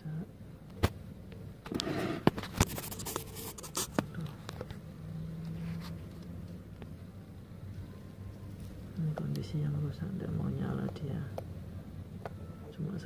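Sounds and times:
scraping on workbench: 1.7s - 2.8s.

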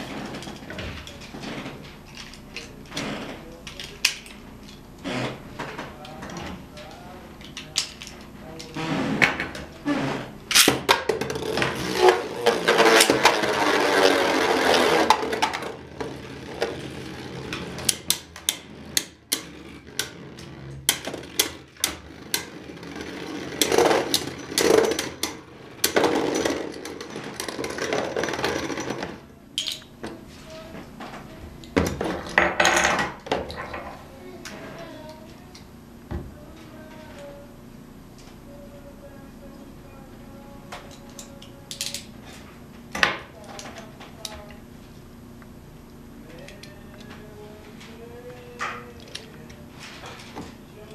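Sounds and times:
spinning tops whirring and grinding: 10.5s - 29.9s.

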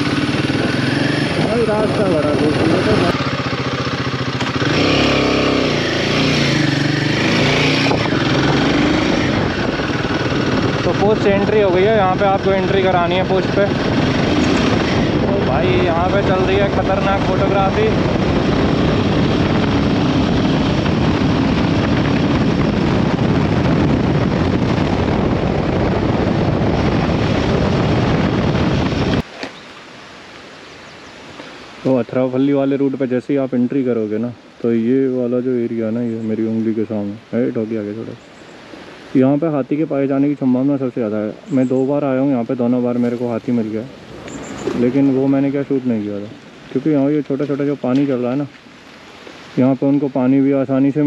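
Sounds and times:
motorcycle engine revving: 0.0s - 29.3s, 43.8s - 45.6s
wind rushing over microphone: 0.0s - 29.3s, 35.5s - 51.0s.

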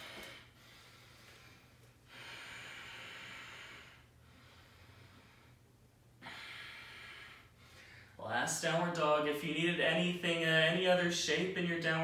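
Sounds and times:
man breathing through nose: 0.0s - 8.2s.

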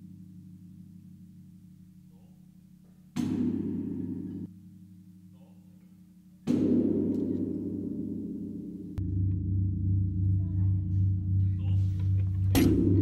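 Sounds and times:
temple bell clanging and ringing: 9.0s - 13.0s.

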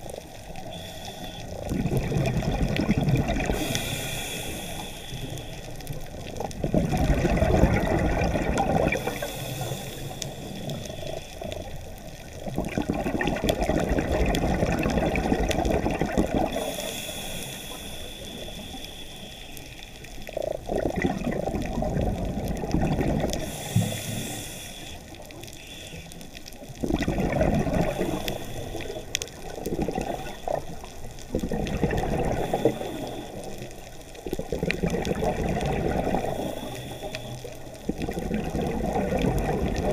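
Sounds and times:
hissing inhale through regulator: 0.2s - 2.0s, 3.4s - 6.3s, 8.1s - 12.4s, 15.2s - 20.7s, 23.2s - 26.7s, 27.6s - 31.3s, 31.9s - 34.2s, 36.0s - 38.1s
exhaled bubbles rushing: 1.6s - 3.8s, 6.1s - 9.2s, 12.3s - 16.8s, 20.3s - 23.5s, 26.7s - 33.3s, 34.3s - 36.7s, 37.8s - 39.9s.

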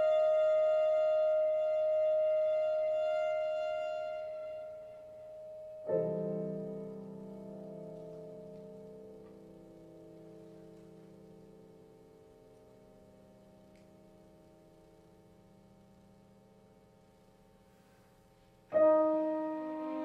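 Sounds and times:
clarinet note: 0.0s - 6.0s
piano chord ringing: 0.0s - 16.9s, 18.7s - 20.0s.

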